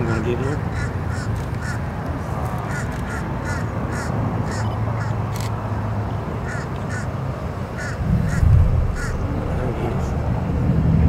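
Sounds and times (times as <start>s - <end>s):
rocket rumble: 8.0s - 11.0s.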